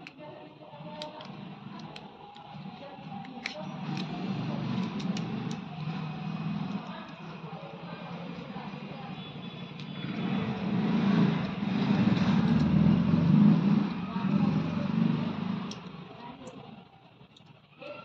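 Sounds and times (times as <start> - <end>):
clicks of small hard parts: 0.9 - 6.0.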